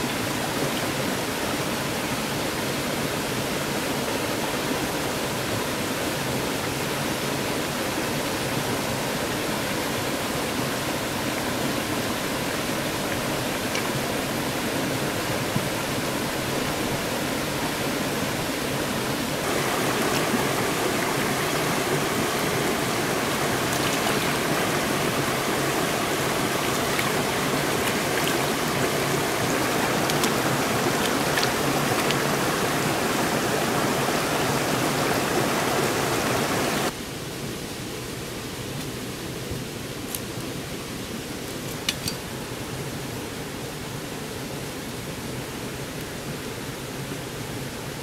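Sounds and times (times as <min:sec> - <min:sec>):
stream water rushing: 0:00.0 - 0:48.0
small water splashes: 0:12.2 - 0:36.9.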